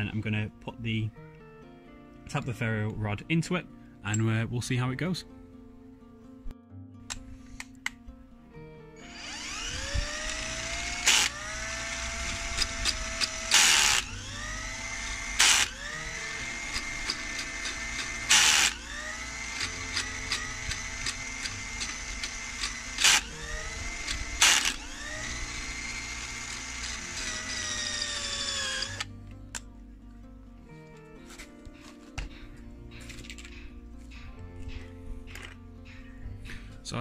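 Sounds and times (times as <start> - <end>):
cordless drill whine: 9.0 - 29.1
drill bit grinding antler: 9.0 - 29.1.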